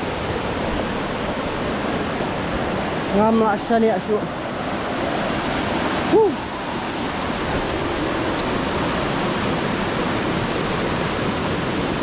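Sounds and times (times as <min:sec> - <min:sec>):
waterfall rushing: 0:00.0 - 0:12.0
person shouting woo: 0:06.1 - 0:06.5.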